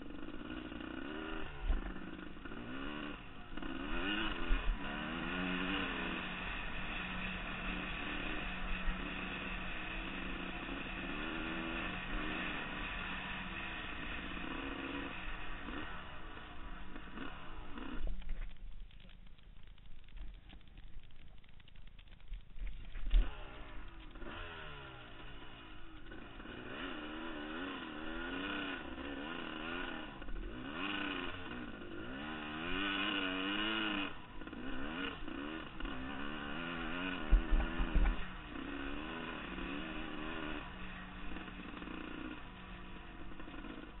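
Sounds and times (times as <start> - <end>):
dirt bike engine revving: 0.0 - 18.3, 22.7 - 44.0.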